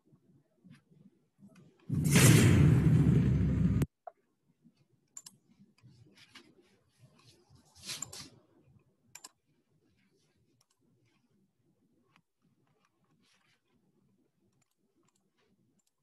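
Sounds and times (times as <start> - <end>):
animated video soundtrack: 1.4 - 3.9
computer mouse clicks: 5.1 - 5.9, 9.1 - 9.4, 10.6 - 11.3, 12.1 - 13.8, 14.5 - 16.0.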